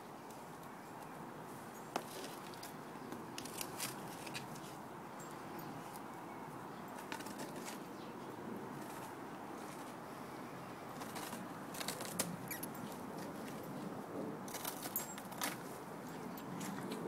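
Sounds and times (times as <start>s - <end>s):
crunching of hard crust: 2.0s - 4.7s, 10.9s - 13.6s
rustling: 10.9s - 13.8s.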